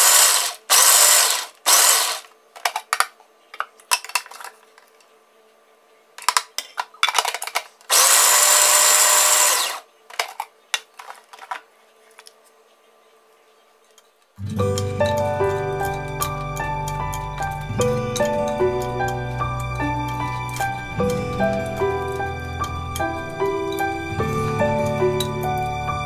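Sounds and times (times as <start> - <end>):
food processor motor: 0.0 - 2.3, 7.9 - 9.8.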